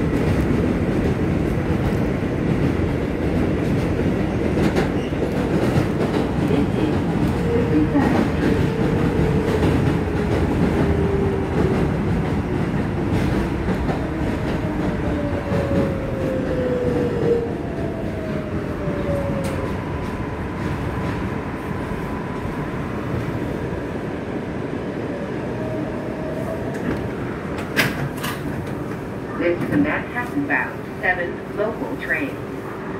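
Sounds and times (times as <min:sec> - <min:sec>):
train wheels clattering on track: 0:00.0 - 0:18.5, 0:26.7 - 0:29.0.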